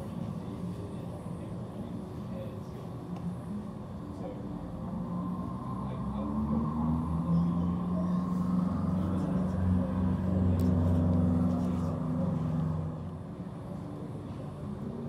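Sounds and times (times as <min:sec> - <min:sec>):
low engine rumble: 0:00.0 - 0:15.0.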